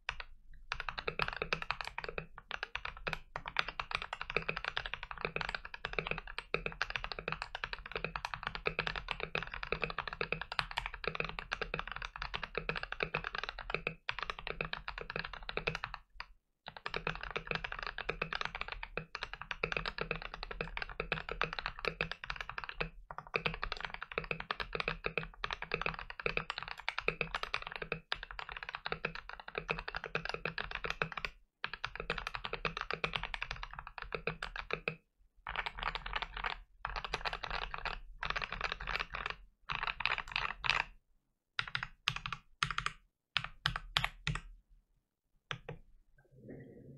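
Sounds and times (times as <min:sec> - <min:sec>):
mechanical keyboard typing: 0:00.0 - 0:41.0, 0:41.6 - 0:44.5, 0:45.5 - 0:45.8.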